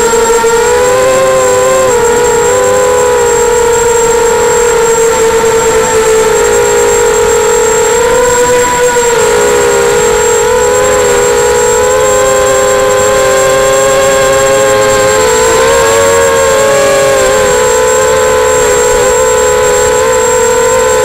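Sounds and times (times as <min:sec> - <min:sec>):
electric motors and propellers whining: 0:00.0 - 0:21.0
faint thin high whine: 0:00.0 - 0:21.0.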